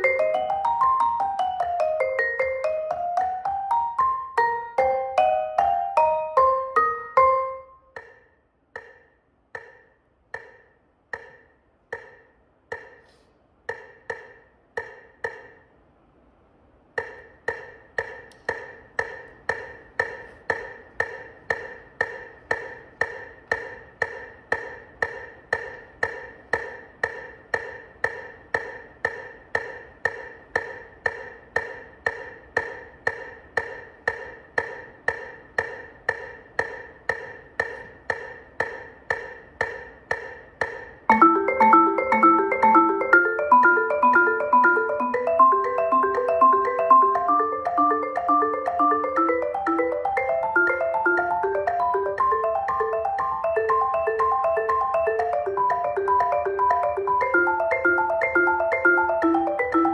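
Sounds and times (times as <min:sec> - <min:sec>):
metronome clicking: 0:17.0 - 0:59.9.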